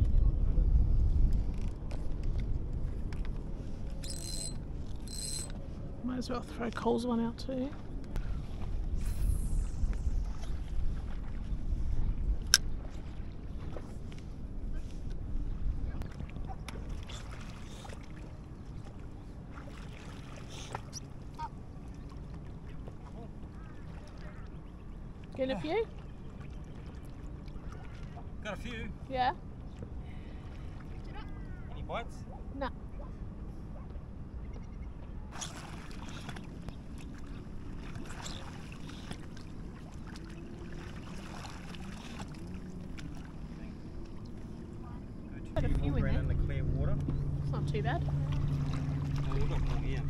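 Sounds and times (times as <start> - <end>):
wind rumbling on microphone: 0.0 - 6.1, 7.8 - 19.6
wind and water rumble: 0.0 - 50.0
short chirps: 4.0 - 5.5.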